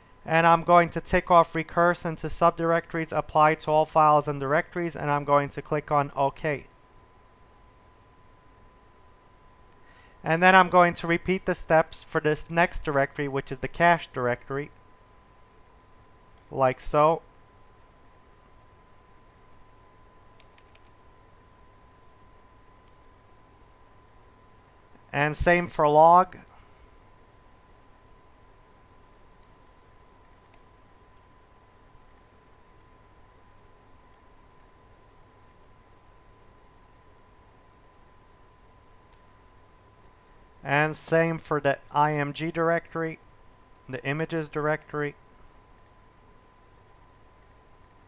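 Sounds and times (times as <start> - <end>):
faint high whine: 0.0 - 48.0
computer mouse clicks: 15.6 - 16.6, 18.0 - 18.6, 19.4 - 19.8, 20.4 - 21.0, 21.7 - 22.0, 22.7 - 23.2, 27.1 - 27.4, 29.4 - 31.3, 32.0 - 32.4, 34.1 - 34.8, 35.4 - 35.7, 36.7 - 37.1, 39.1 - 40.2, 45.7 - 46.0, 47.4 - 48.0.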